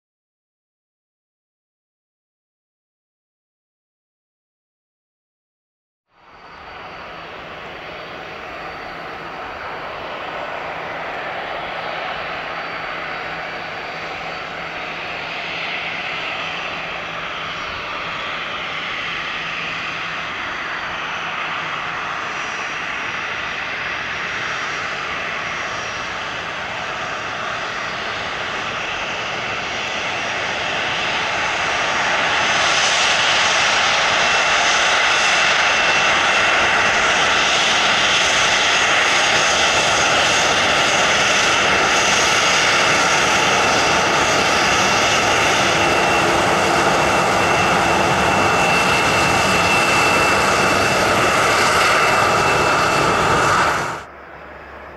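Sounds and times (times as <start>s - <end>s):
jet engines spooling up: 6.2s - 54.9s.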